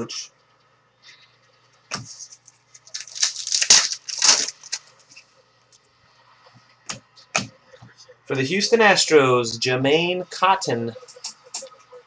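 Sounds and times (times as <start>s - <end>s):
foil wrapper tearing and crinkling: 2.2s - 4.9s.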